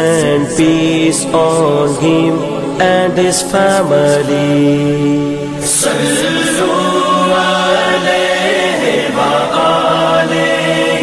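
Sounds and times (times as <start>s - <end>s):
a cappella voices singing: 0.0s - 11.0s.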